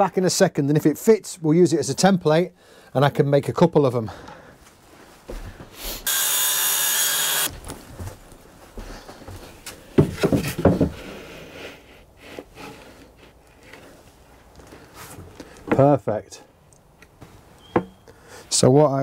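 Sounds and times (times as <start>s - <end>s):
power saw cutting plywood: 6.1s - 7.5s
light wooden knocks and rubbing: 8.8s - 11.2s.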